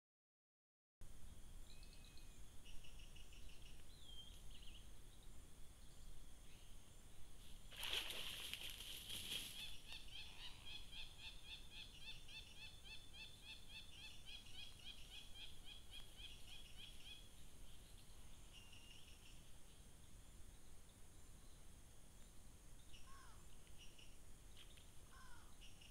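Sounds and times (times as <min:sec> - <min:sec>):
high insect hiss: 0:01.0 - 0:25.9
chirping calls: 0:09.3 - 0:19.4.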